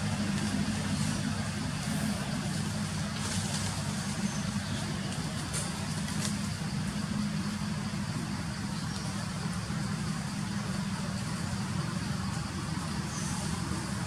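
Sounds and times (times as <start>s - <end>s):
engine humming: 0.0s - 14.0s
steady hiss: 0.0s - 14.0s.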